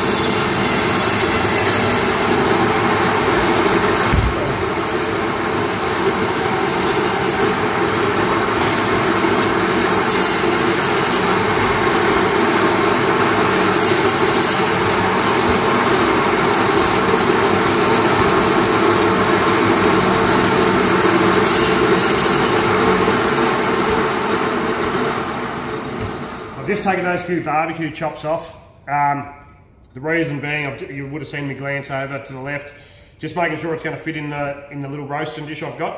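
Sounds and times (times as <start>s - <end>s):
band saw cutting meat: 0.0s - 26.6s.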